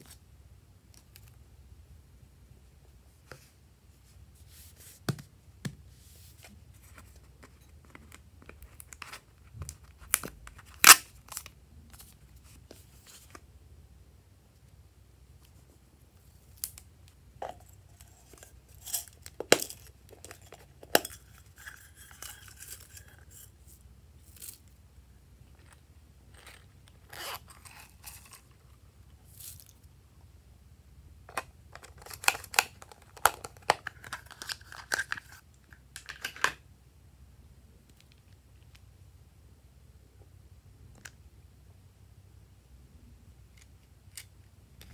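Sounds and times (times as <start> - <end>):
plastic packaging crinkling: 31.8 - 35.4.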